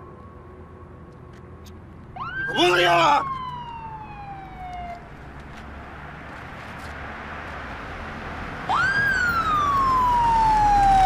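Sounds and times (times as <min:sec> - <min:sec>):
police siren wailing: 0:02.2 - 0:05.2, 0:08.6 - 0:11.0.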